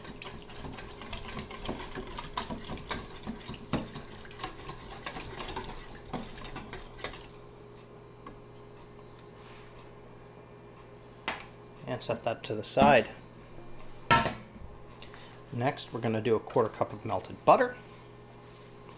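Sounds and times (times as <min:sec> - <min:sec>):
whisk clinking in metal bowl: 0:00.0 - 0:07.1.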